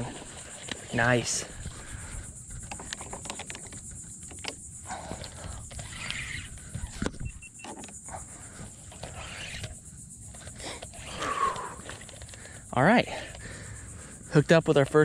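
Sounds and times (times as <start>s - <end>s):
steady high hiss: 0.0s - 2.7s, 5.8s - 15.0s
fishing reel clicks and rattles: 0.0s - 8.1s, 8.9s - 13.4s.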